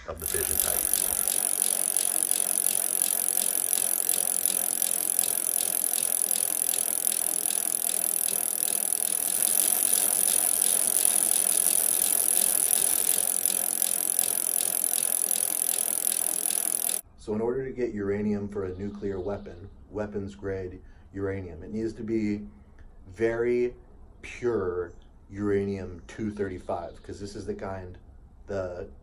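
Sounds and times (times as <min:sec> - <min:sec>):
fast mechanical rattle: 0:00.0 - 0:17.0.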